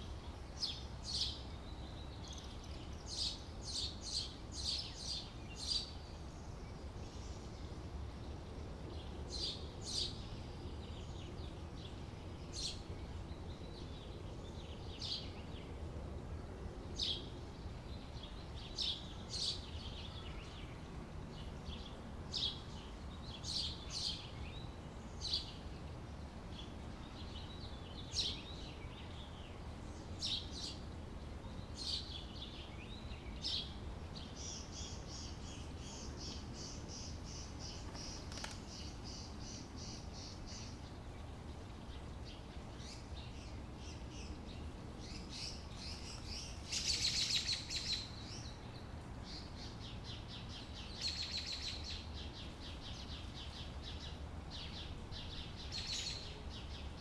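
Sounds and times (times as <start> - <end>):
bird chirps: 41.9 - 57.0.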